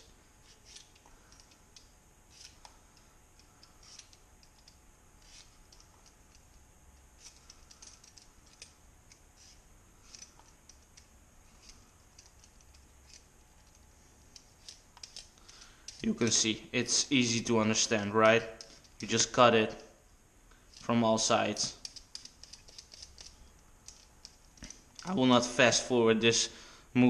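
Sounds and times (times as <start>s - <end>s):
peeler scraping potato skin: 0.4s - 1.5s, 2.3s - 2.7s, 3.6s - 6.5s, 7.1s - 13.3s, 14.4s - 16.2s, 21.8s - 24.4s.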